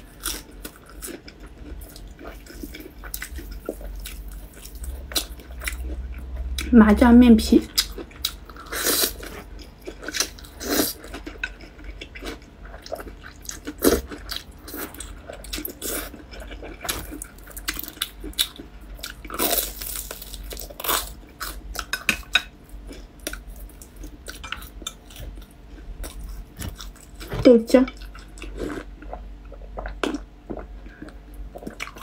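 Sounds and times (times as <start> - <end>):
crunching fried dough: 0.0 - 6.7, 7.7 - 32.0.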